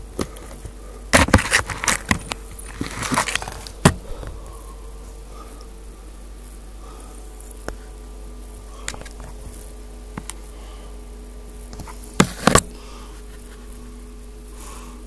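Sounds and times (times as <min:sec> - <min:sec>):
steady low hum: 0:00.0 - 0:15.0
camera bumping plastic tubing: 0:01.2 - 0:04.0.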